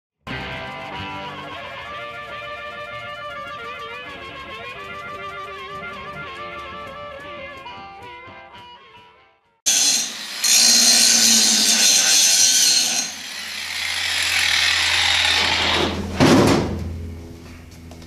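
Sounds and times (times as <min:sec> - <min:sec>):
angle grinder grinding metal: 0:09.7 - 0:16.1.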